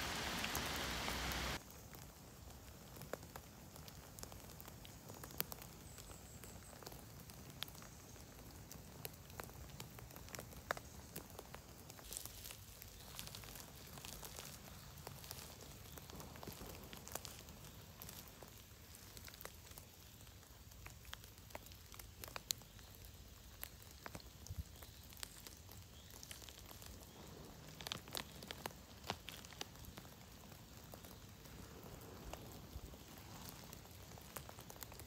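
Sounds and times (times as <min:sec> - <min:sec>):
rain drops ticking: 0:00.0 - 0:35.0
hand rustling in needle litter: 0:12.0 - 0:16.8.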